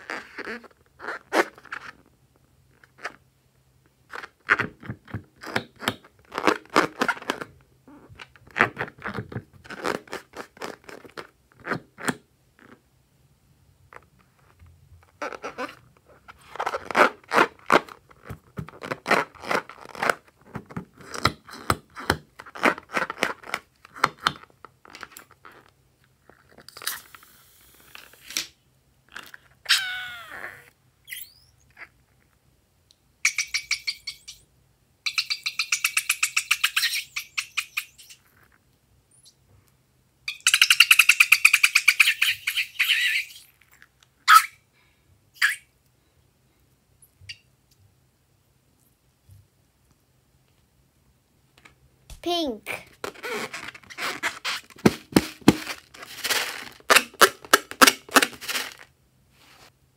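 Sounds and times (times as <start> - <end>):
rubber balloon squeaking: 0.0 - 2.1, 4.1 - 12.8, 13.9 - 24.4, 29.1 - 32.0, 40.3 - 43.6, 45.4 - 45.7, 52.2 - 58.8.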